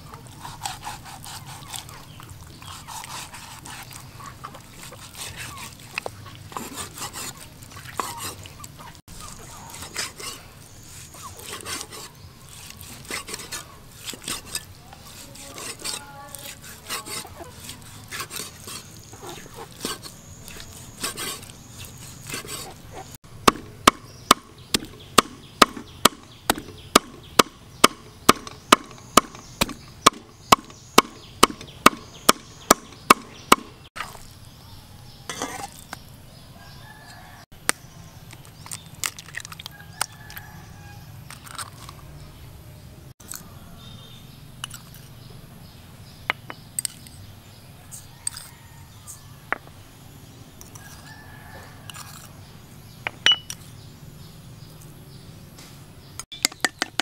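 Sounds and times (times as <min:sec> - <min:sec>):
cleaver chopping on wooden board: 0:23.4 - 0:33.7.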